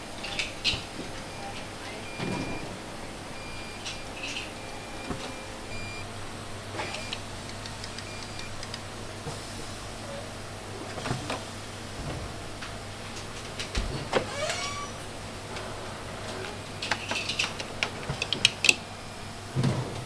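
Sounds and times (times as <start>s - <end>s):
low machine hum: 0.0s - 20.0s
high electronic beeps: 3.4s - 6.0s.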